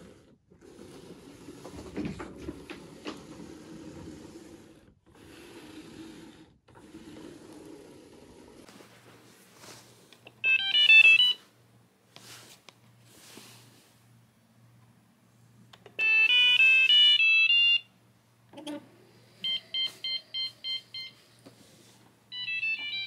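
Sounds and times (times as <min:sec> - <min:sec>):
robot mop electronic melody: 0:10.4 - 0:11.4, 0:16.0 - 0:17.9, 0:19.4 - 0:21.3, 0:22.3 - 0:23.0.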